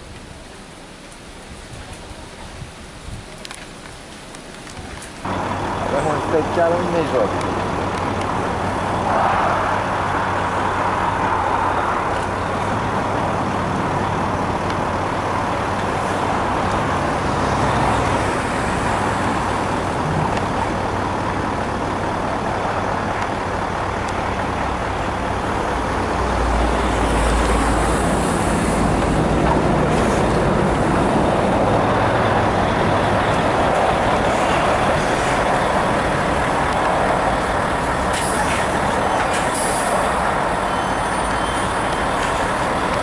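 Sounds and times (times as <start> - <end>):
road traffic noise: 0.0 - 43.0
vehicle passing rumble: 4.6 - 43.0.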